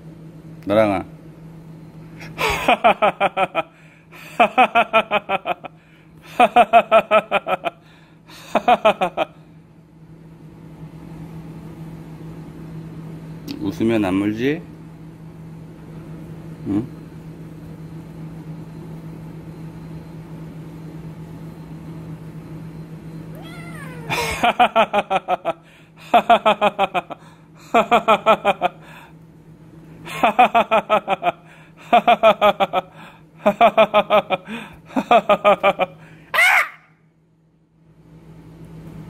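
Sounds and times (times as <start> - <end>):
low steady hum: 0.0 - 39.0
cartoon laughter: 23.5 - 25.4, 35.1 - 36.9.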